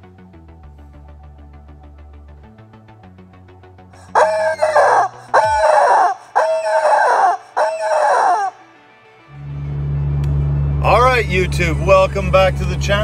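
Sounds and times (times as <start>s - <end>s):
faint music with steady beat: 0.0s - 13.0s
rubber chicken toy squawking: 4.1s - 8.6s.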